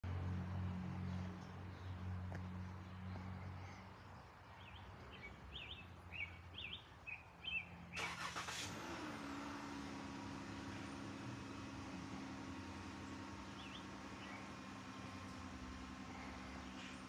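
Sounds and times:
low engine hum: 0.0 - 17.0
small bird chirping: 4.5 - 7.8, 13.0 - 15.4.

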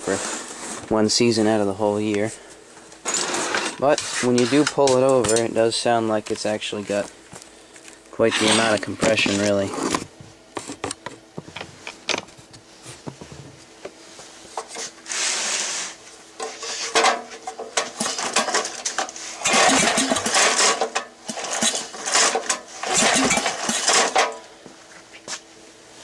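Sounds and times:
engine cranking without firing: 19.4 - 24.3
recoil starter rope pulls: 19.4 - 24.4.

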